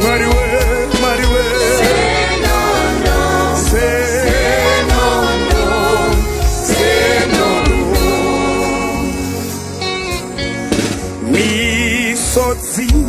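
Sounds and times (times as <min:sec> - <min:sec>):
gospel band playing: 0:00.0 - 0:13.0.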